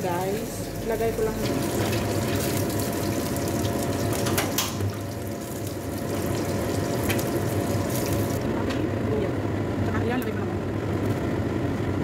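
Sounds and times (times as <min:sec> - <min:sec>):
liquid sizzling in a wok: 0:00.0 - 0:08.5.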